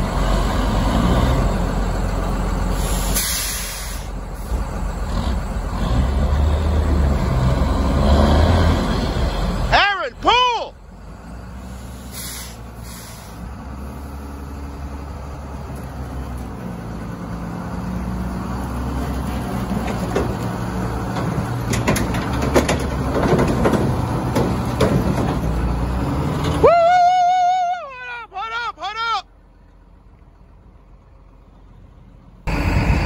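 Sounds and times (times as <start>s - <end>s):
heavy diesel engine droning: 0.0s - 33.0s
metal knocks and clanks: 19.7s - 25.8s.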